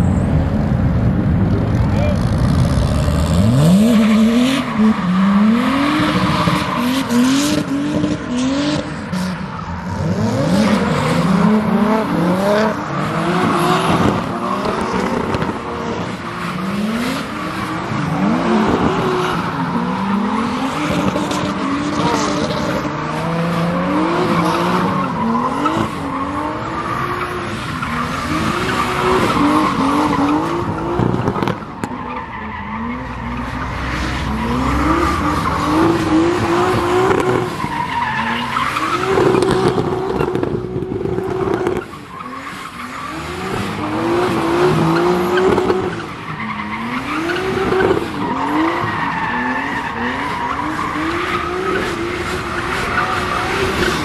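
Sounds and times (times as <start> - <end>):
car engine revving hard: 2.2 - 31.6.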